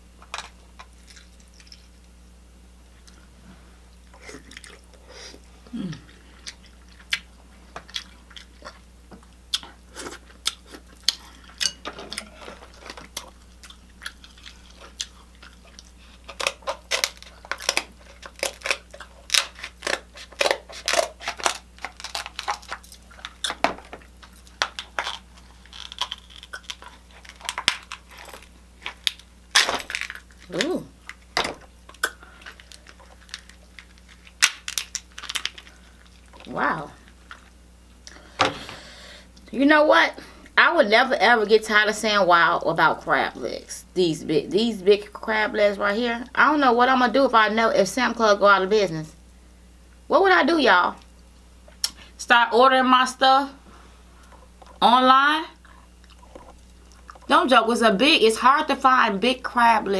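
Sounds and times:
wet chewing and lip-smacking: 4.0s - 5.0s, 6.0s - 28.2s, 55.6s - 57.3s
shells cracking and crunching: 6.4s - 37.5s.

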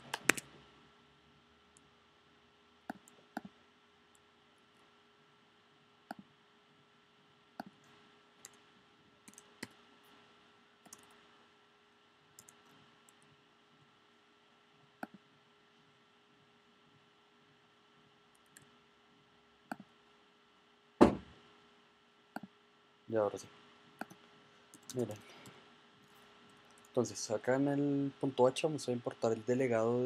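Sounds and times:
computer keyboard and mouse clicks: 0.0s - 0.5s, 2.9s - 3.5s, 7.6s - 8.6s, 9.2s - 9.8s, 10.8s - 11.2s, 12.4s - 13.3s, 15.0s - 15.2s, 24.0s - 25.6s
faint electrical hum: 0.0s - 30.0s.

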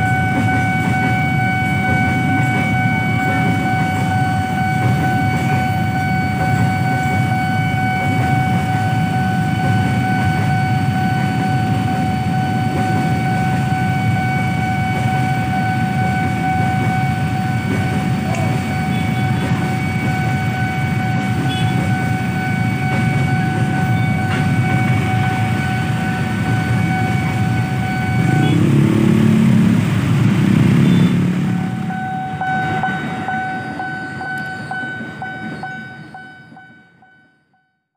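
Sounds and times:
freight train rumble: 0.0s - 37.4s
crossing alarm high tone: 0.0s - 37.9s
motorcycle engines: 8.0s - 33.4s.

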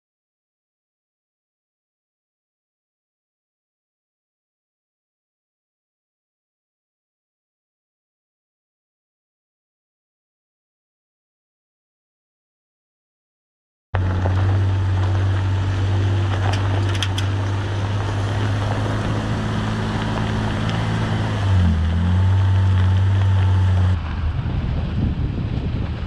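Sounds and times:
vehicle engine running: 14.0s - 26.0s
wind buffeting microphone: 14.0s - 26.0s.

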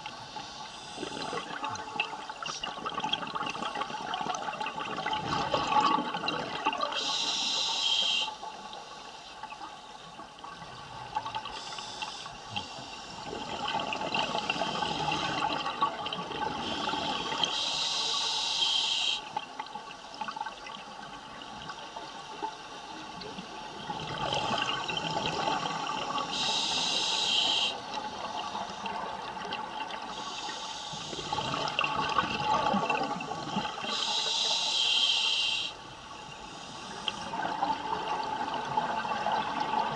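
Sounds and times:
exhaled bubbles gurgling: 0.8s - 8.2s, 13.1s - 17.9s, 23.2s - 34.5s, 36.8s - 39.9s
regulator air hiss: 7.0s - 9.2s, 11.5s - 13.3s, 16.6s - 19.3s, 26.2s - 27.9s, 30.1s - 31.4s, 33.8s - 37.3s.

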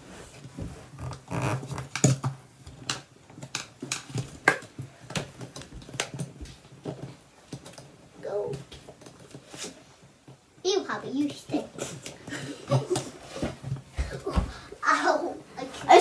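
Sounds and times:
plastic parts clicking together: 1.7s - 8.0s.

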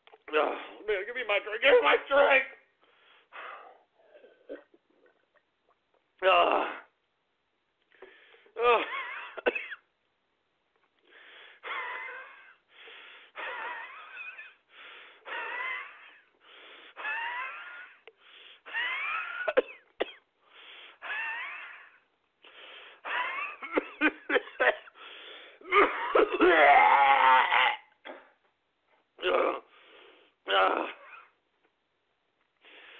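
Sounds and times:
man coughing: 8.6s - 9.8s, 19.4s - 20.2s, 23.1s - 25.0s, 25.7s - 26.7s
man wheezing and gasping: 11.2s - 19.8s, 20.6s - 28.4s.

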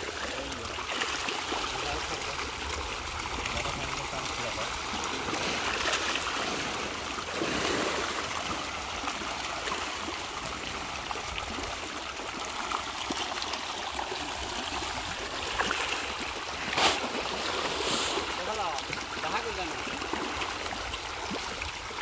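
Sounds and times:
fish thrashing and splashing water: 0.0s - 22.0s.

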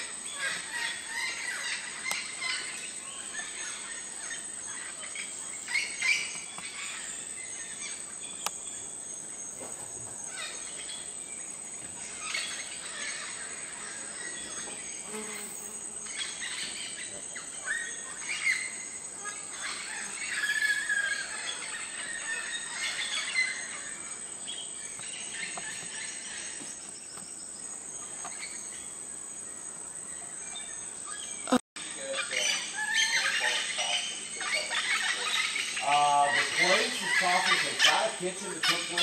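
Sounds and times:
birds calling and chirping: 0.0s - 39.0s
high-pitched insect drone: 12.1s - 24.3s, 31.8s - 39.0s.

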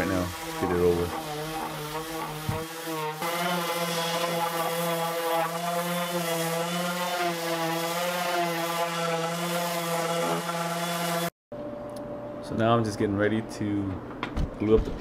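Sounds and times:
electric sander on plywood: 0.0s - 11.3s.

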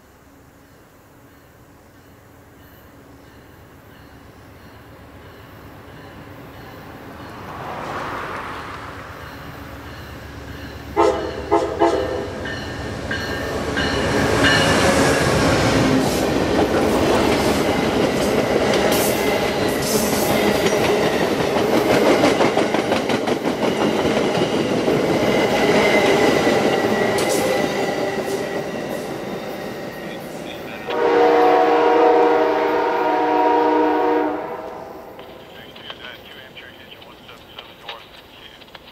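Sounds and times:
train rumbling and clattering past: 0.6s - 38.9s
train horn blasts: 10.9s - 12.4s, 30.8s - 35.2s.

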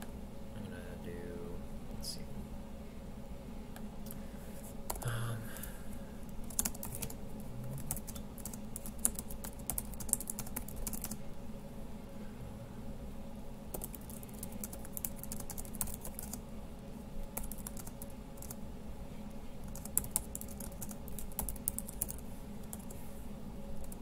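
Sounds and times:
faint steady hum: 0.0s - 24.0s
typing on computer keyboard: 6.5s - 7.2s, 7.8s - 11.2s, 13.7s - 16.4s, 17.4s - 18.6s, 19.7s - 22.9s.

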